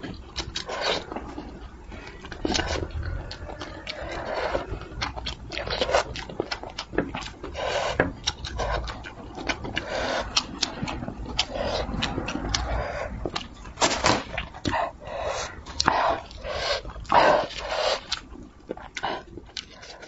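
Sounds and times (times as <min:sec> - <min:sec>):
wet chewing and slurping: 0:00.0 - 0:20.0
sharp mouth clicks and smacks: 0:04.6 - 0:14.8, 0:15.7 - 0:20.0.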